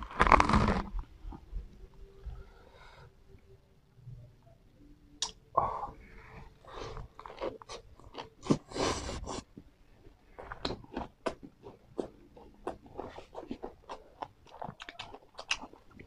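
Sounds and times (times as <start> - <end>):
chewing crunchy lettuce wrap: 0.0 - 1.4, 6.6 - 9.4, 10.3 - 16.0.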